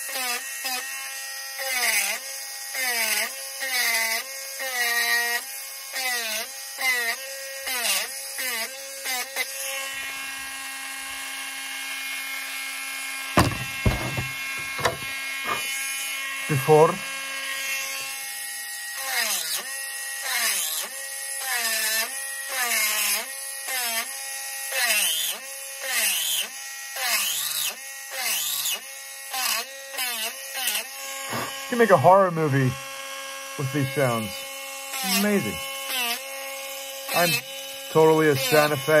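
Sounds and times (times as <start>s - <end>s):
knocks on workbench: 13.4s - 15.6s
rotary tool spinning: 13.4s - 15.7s.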